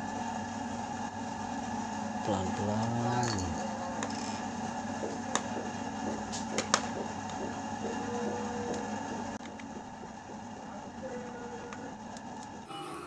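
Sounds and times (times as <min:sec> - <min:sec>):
steady background hum: 0:00.0 - 0:13.0.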